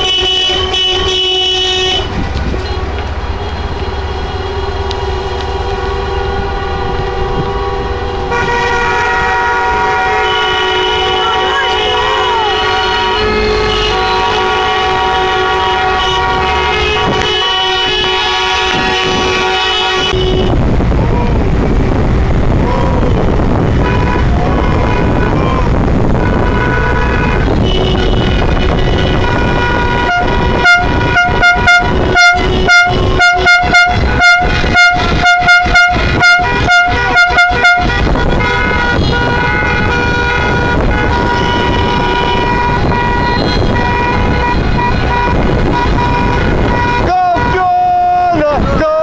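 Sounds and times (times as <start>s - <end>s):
car horns honking: 0.0s - 49.0s
wind and road noise: 0.0s - 49.0s.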